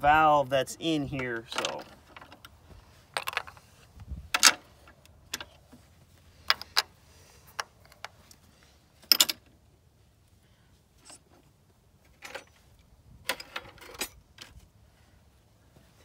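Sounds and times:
wrenches clinking and clicking: 9.0s - 9.5s, 12.0s - 12.6s, 13.3s - 14.6s.

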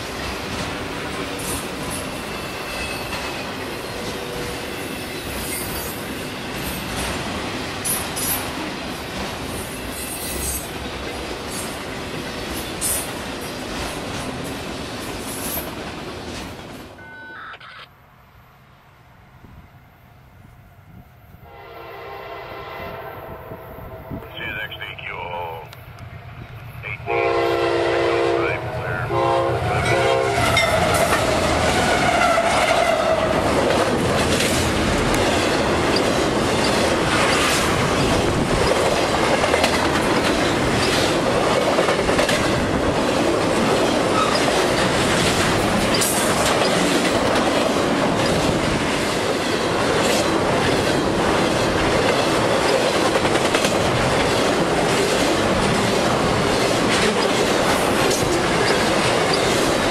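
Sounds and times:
locomotive air horn blasts: 21.4s - 23.4s, 27.0s - 30.6s
train wheels clattering on rails: 29.8s - 59.9s.

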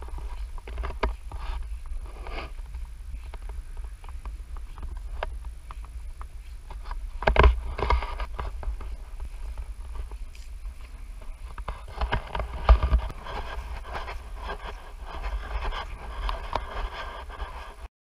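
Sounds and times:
footsteps through dry vegetation: 0.0s - 17.9s
low rumble: 0.0s - 17.9s.

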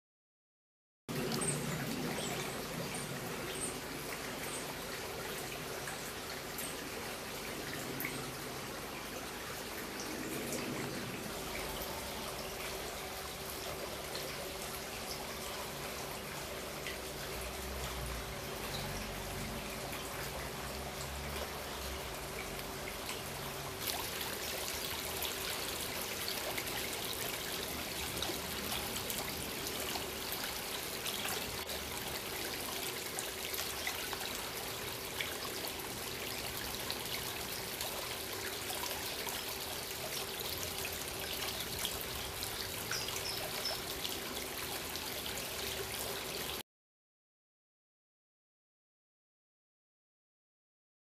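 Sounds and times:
stream water trickling: 1.1s - 46.6s.

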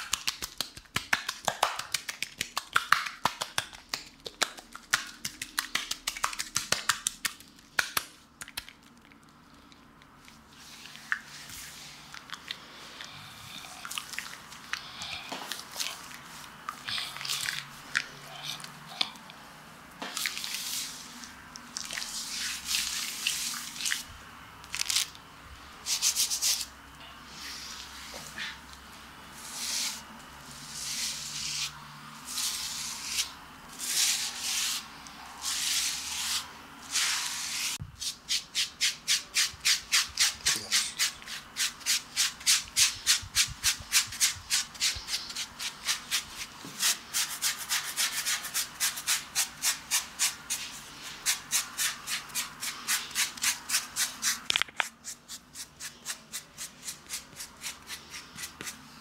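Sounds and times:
brush scrubbing skin: 20.1s - 24.1s, 29.4s - 59.0s.

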